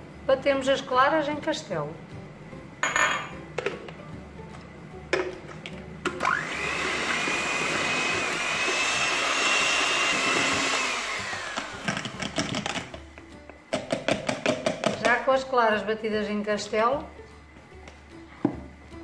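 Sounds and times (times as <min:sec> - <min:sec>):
electric hand mixer whining: 0:06.2 - 0:12.9
knocks on plastic jug: 0:13.7 - 0:15.1.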